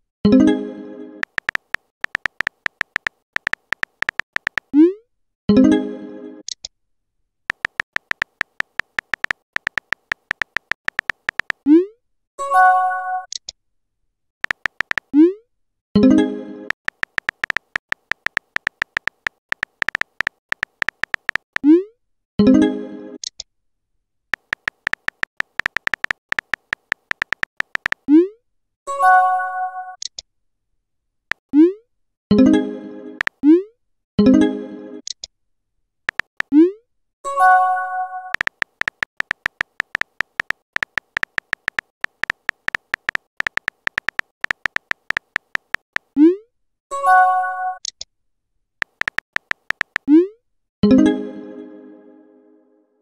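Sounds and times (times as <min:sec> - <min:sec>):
phone keyboard typing clicks: 0:01.2 - 0:04.7, 0:07.5 - 0:11.6, 0:14.4 - 0:15.1, 0:16.7 - 0:21.7, 0:24.4 - 0:28.1, 0:36.1 - 0:36.5, 0:38.3 - 0:46.1, 0:48.8 - 0:50.1.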